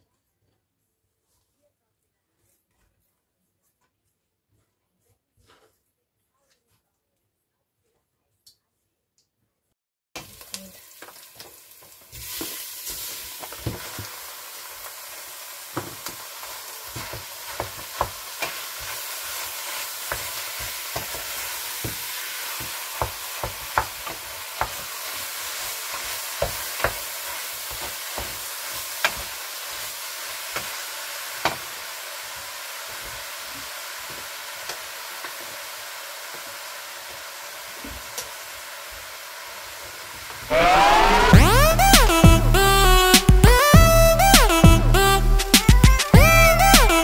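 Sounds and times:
meat and onion sizzling in pot: 10.2s - 47.0s.

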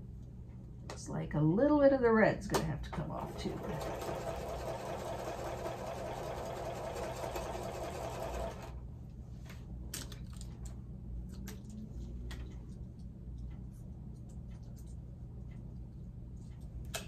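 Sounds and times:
sewing machine stitching: 3.2s - 8.8s.

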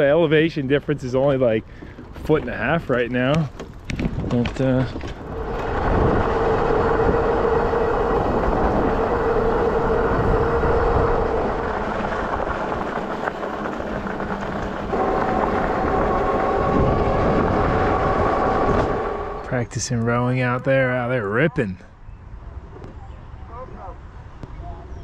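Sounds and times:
tyres rolling on dirt: 0.0s - 20.9s
wind on microphone: 2.1s - 19.8s
electric bike motor whine: 4.9s - 19.6s.

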